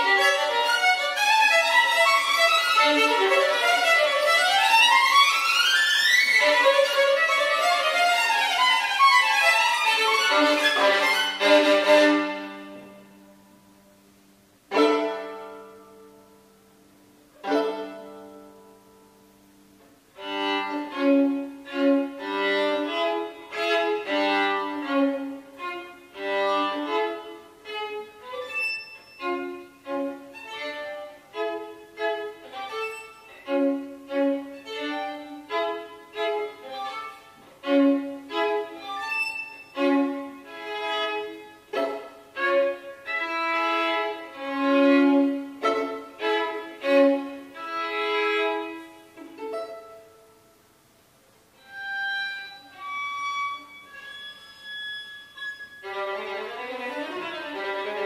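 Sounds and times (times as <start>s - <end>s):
bowed violin double-stops: 0.0s - 13.0s, 20.2s - 50.0s
pizzicato violin chords: 0.0s - 13.4s, 14.7s - 16.2s, 17.4s - 18.8s, 20.2s - 50.4s, 51.6s - 58.0s
solo violin: 0.0s - 13.8s, 14.6s - 16.6s, 17.2s - 50.6s, 51.5s - 58.0s.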